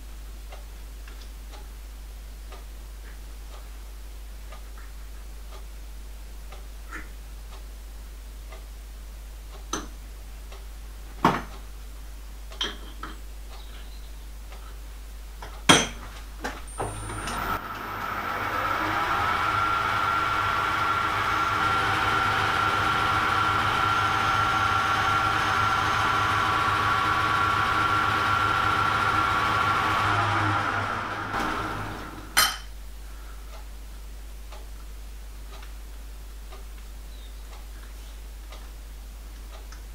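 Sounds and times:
lathe motor whine: 16.7 - 32.4.

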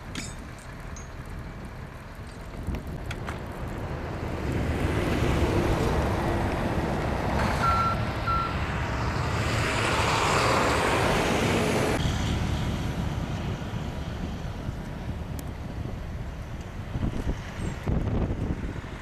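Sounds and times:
tow truck engine under load: 0.0 - 19.0
short beeps: 7.6 - 8.6.

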